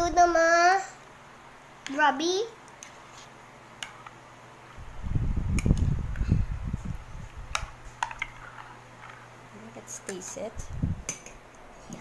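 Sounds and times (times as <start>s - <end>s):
spoon stirring thick food: 2.6s - 4.2s, 7.2s - 9.3s.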